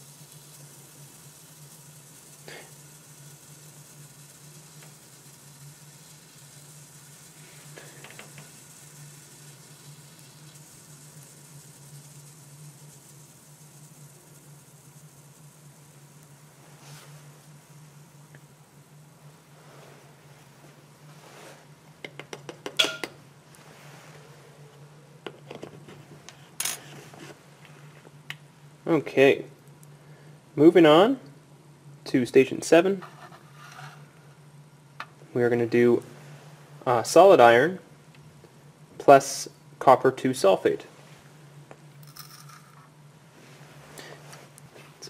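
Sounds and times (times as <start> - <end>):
steady low hum: 0.0 - 45.0
liquid fizzing with bubbles: 0.1 - 16.0.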